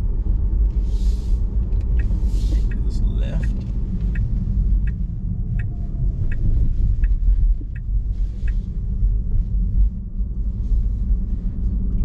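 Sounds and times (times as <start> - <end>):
road and tyre rumble: 0.0 - 12.0
turn signal ticking: 1.4 - 10.8.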